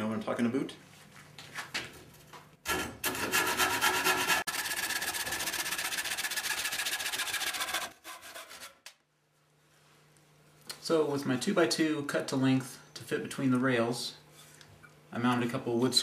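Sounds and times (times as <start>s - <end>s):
handsaw cutting wood: 2.7s - 8.9s.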